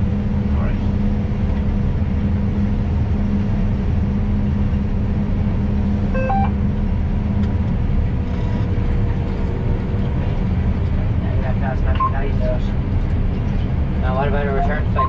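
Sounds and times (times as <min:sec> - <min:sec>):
combine harvester engine droning: 0:00.0 - 0:15.0
rising electronic beep: 0:06.2 - 0:06.6.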